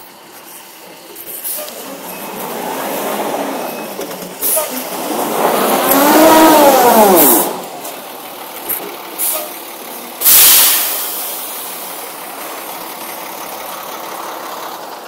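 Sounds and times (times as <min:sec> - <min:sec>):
diesel truck engine revving: 0:01.2 - 0:15.0
loud air hiss: 0:10.2 - 0:11.9.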